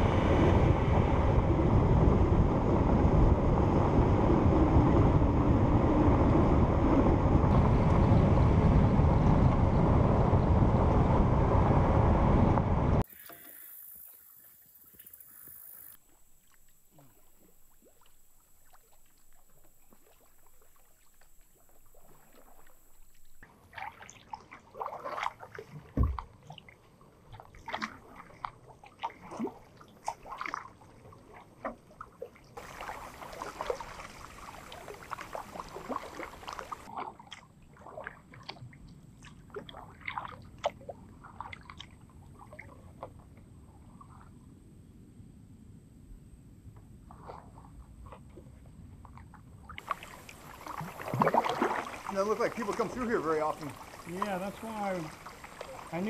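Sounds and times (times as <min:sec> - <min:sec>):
water dripping off paddle: 0:13.0 - 0:26.6, 0:32.6 - 0:37.4, 0:49.8 - 0:56.0
water sloshing along hull: 0:13.0 - 0:44.5, 0:47.0 - 0:56.0
thump: 0:26.0 - 0:26.2.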